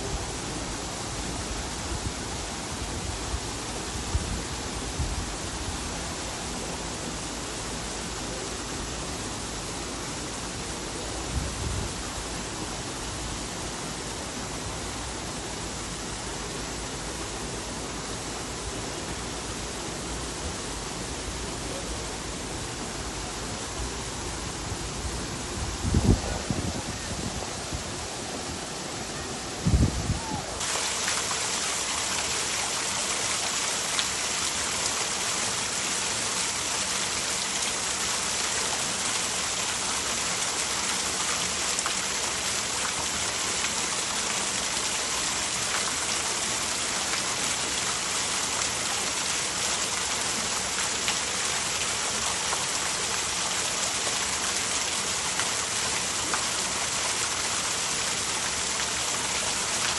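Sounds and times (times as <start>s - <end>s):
running water rushing: 0.0s - 59.9s.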